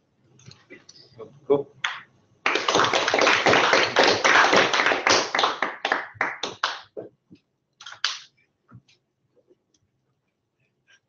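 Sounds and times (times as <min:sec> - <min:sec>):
small group applauding: 0:01.8 - 0:07.0, 0:07.8 - 0:08.3.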